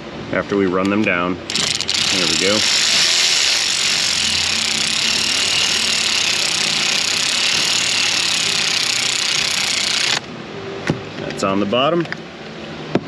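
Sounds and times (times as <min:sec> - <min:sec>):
machine hissing: 0:01.5 - 0:10.2.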